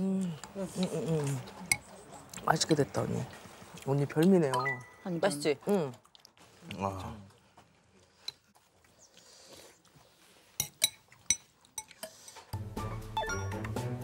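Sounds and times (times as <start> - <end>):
cutlery and dishes clinking: 10.6 - 12.5.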